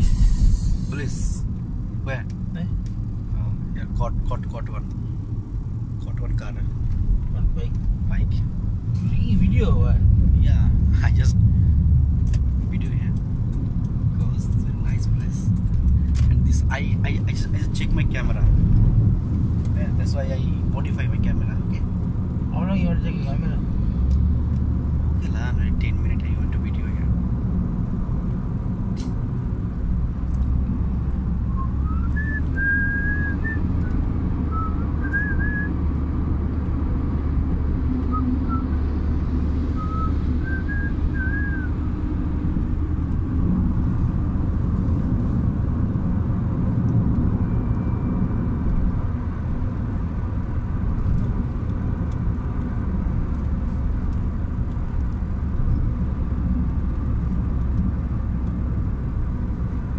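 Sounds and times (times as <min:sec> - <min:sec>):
car cabin engine and road rumble: 0:00.0 - 0:59.9
person whistling: 0:31.5 - 0:33.6, 0:34.5 - 0:35.7, 0:38.1 - 0:38.7, 0:39.8 - 0:41.7.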